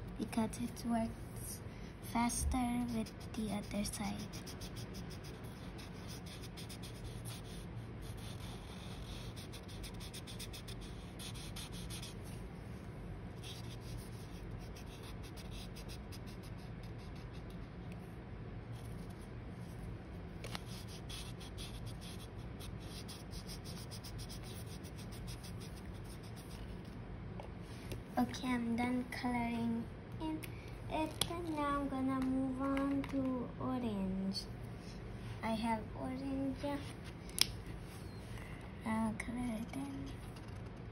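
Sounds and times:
felt-tip marker rubbing on paper: 3.0 - 12.4, 13.4 - 17.7, 20.5 - 26.8.

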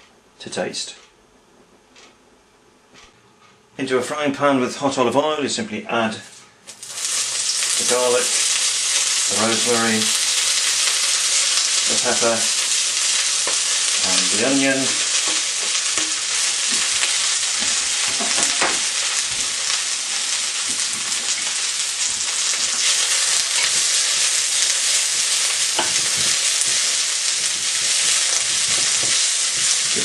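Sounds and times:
onion sizzling in oil: 6.7 - 30.0
wooden spoon stirring pan: 6.7 - 30.0.

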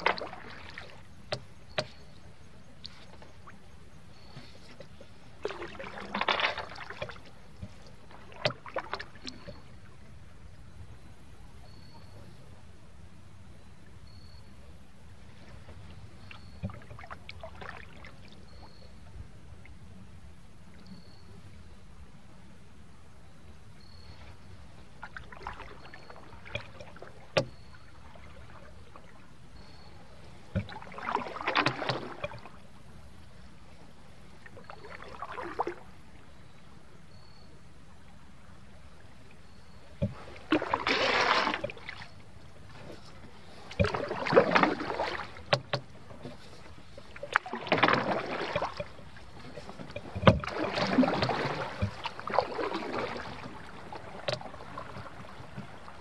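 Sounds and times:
paddle knocking against canoe: 0.0 - 2.2, 4.3 - 9.7, 25.2 - 27.8, 30.5 - 32.6, 40.0 - 42.0, 42.7 - 56.0
paddle splashing through water: 0.0 - 3.6, 4.2 - 9.9, 15.3 - 18.5, 24.3 - 32.6, 34.3 - 36.0, 39.5 - 56.0.

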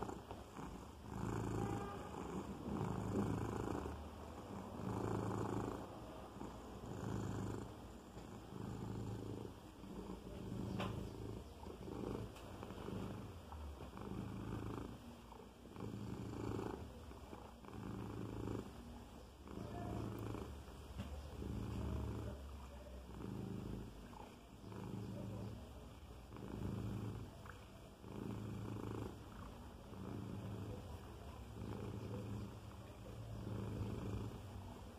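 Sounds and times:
cat purring: 0.0 - 34.9.

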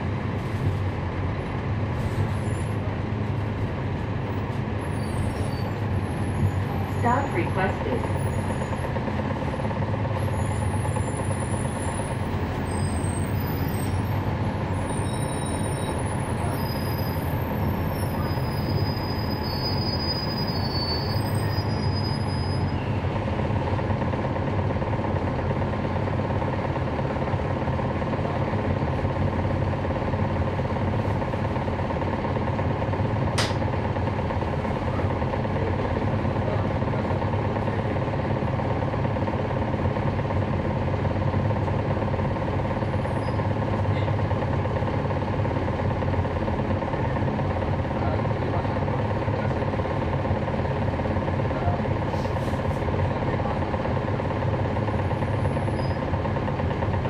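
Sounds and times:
bus diesel engine running: 0.0 - 57.0
sharp click: 33.4 - 33.6.

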